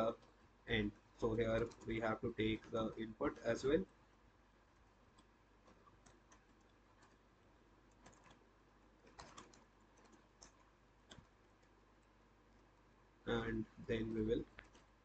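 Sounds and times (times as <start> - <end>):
computer keyboard typing: 4.8 - 12.7.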